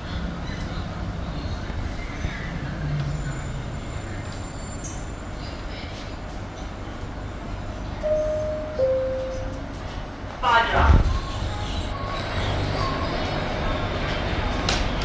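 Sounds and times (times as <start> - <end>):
people mover rumble and hum: 0.0 - 15.0
two-note chime: 8.0 - 9.6.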